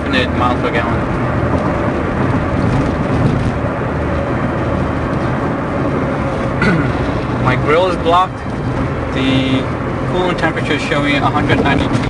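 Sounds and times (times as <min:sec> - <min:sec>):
car cabin road and engine rumble: 0:00.0 - 0:12.0.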